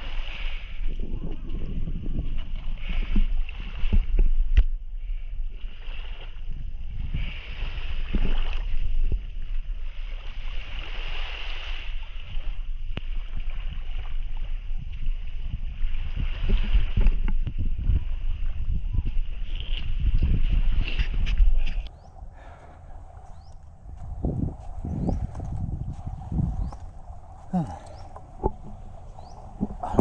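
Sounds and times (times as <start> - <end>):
wind buffeting microphone: 0.0 - 30.0
small waves washing onto sand: 5.2 - 23.6.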